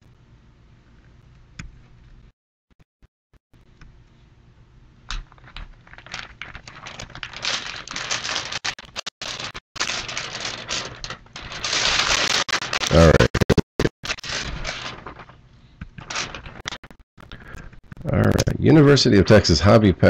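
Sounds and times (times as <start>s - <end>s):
faint hum: 0.0s - 2.3s, 3.6s - 8.6s
paper crinkling by hand: 5.1s - 18.4s.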